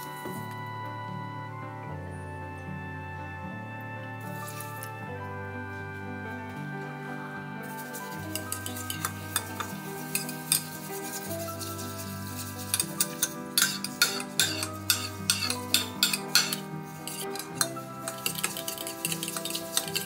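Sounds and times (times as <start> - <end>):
soft background music: 0.0 - 20.0
metal spoon clinking in mug: 8.3 - 10.8, 12.7 - 20.0.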